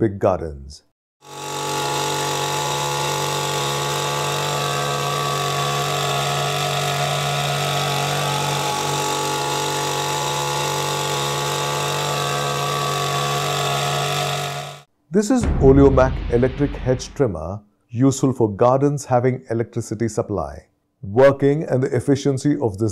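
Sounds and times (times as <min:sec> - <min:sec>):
hedge trimmer engine running: 0:01.2 - 0:14.9.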